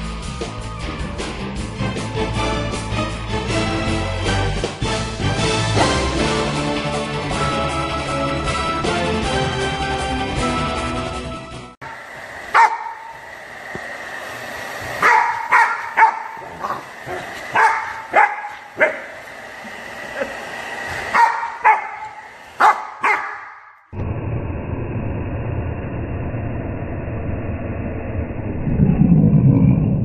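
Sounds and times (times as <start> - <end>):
hairdryer high whine: 11.8 - 23.0
puppy barking sharply: 12.5 - 13.1, 15.0 - 19.1, 21.1 - 23.7
low rushing noise: 24.0 - 30.0.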